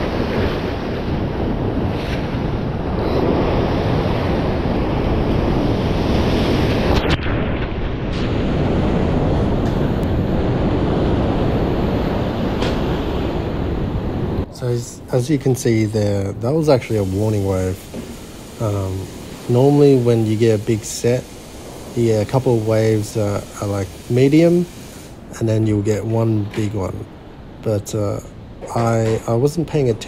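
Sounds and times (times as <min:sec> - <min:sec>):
ocean surf over rocks: 0:00.0 - 0:30.0
wind buffeting microphone: 0:00.0 - 0:30.0
wave washing over ledge: 0:15.2 - 0:27.0.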